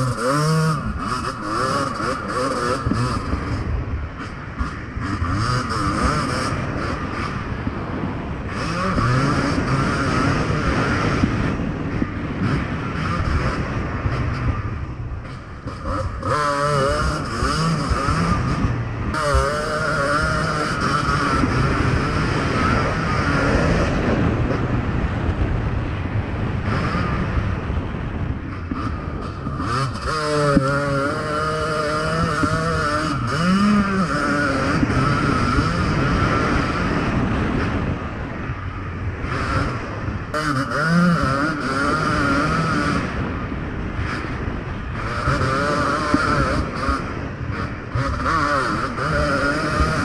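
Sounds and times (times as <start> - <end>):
motocross bike engine revving: 0.0 - 50.0.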